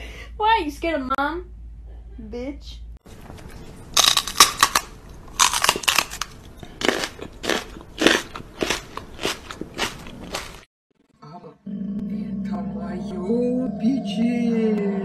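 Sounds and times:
person chewing crunchy food: 3.2s - 10.7s.

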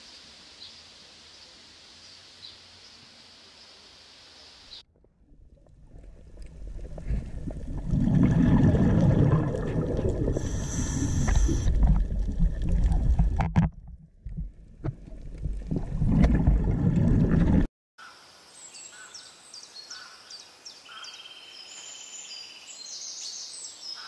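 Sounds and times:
diver's bubbles rumbling underwater: 5.3s - 17.7s
short high hiss: 10.4s - 11.7s.

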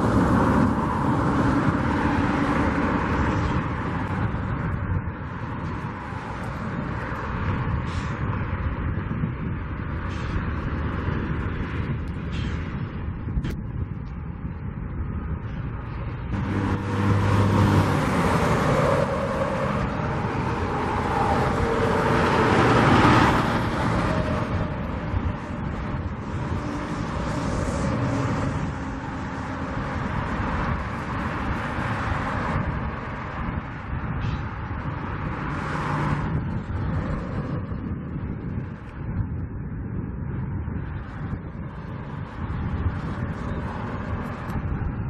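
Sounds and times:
vehicle engines rumbling: 0.0s - 45.0s.

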